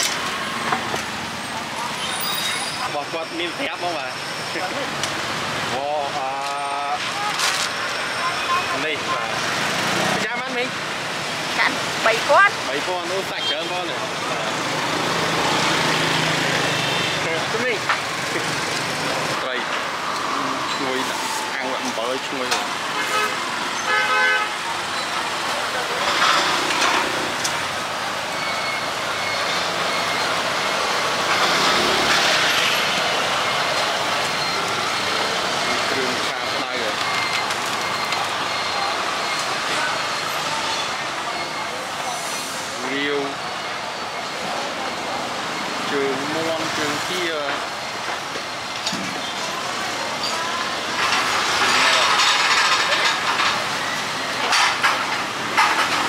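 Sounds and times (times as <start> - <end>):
street market traffic din: 0.0 - 56.0
hubbub of voices: 24.5 - 56.0.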